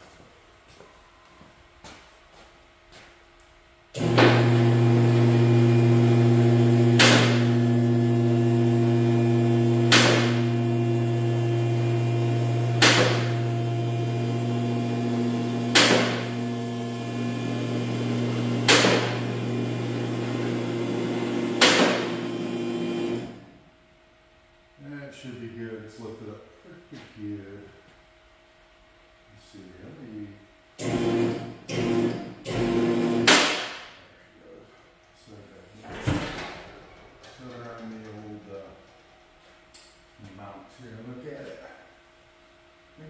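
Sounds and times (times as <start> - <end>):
hydraulic pump motor humming: 4.0 - 23.4, 30.8 - 33.3.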